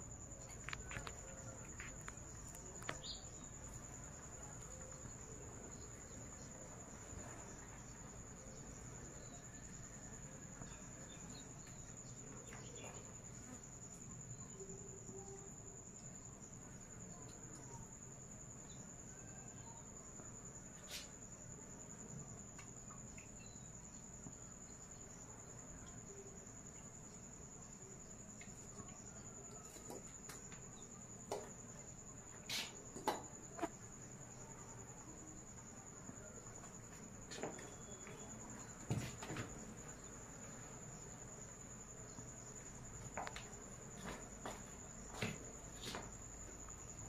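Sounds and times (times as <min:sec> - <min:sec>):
low background noise: 0:00.0 - 0:47.0
insect trilling: 0:32.4 - 0:35.0.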